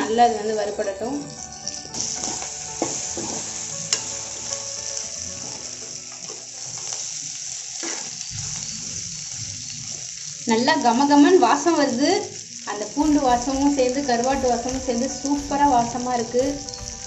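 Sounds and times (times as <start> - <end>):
fish sizzling in oil: 0.0 - 17.0
spoon knocking pan: 13.0 - 17.0.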